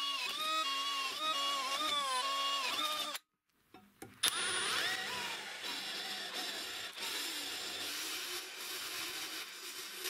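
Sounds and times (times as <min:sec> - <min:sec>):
drill press motor whine: 0:04.2 - 0:10.0.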